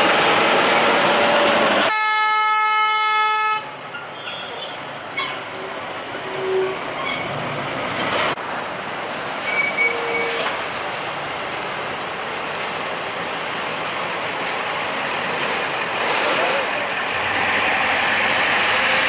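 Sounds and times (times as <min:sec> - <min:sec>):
trucks rumbling past: 0:03.6 - 0:19.0
brief squeals: 0:09.4 - 0:10.6.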